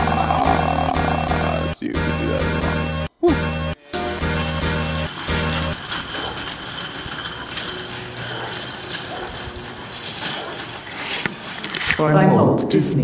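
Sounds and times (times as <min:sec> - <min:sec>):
shopping cart rattling on asphalt: 0:03.9 - 0:12.0.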